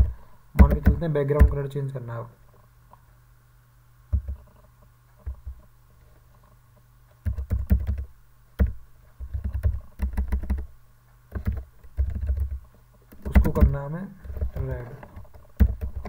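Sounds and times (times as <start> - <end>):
keyboard typing: 0.0 - 1.6, 4.1 - 4.5, 7.2 - 10.7, 11.3 - 16.0
faint low hum: 0.0 - 16.0.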